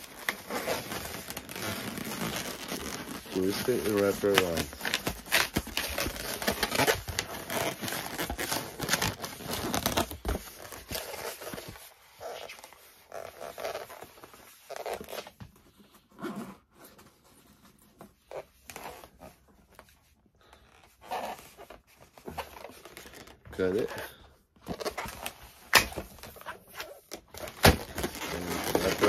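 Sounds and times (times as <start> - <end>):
balloons squeaking and rubbing: 0.0 - 29.0.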